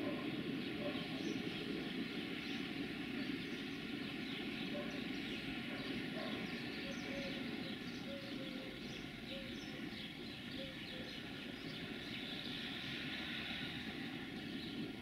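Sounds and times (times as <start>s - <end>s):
small birds chirping: 0.0s - 15.0s
cars passing close by: 8.6s - 15.0s.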